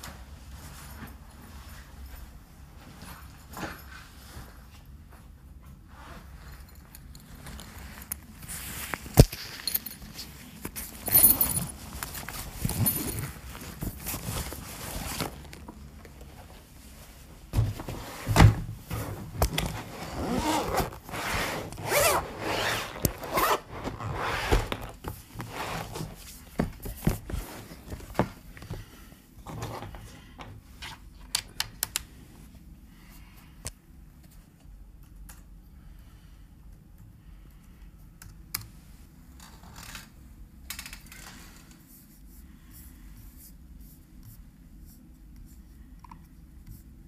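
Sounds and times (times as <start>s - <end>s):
rustling and scraping: 0.0s - 31.1s
case unzipping: 19.4s - 26.1s.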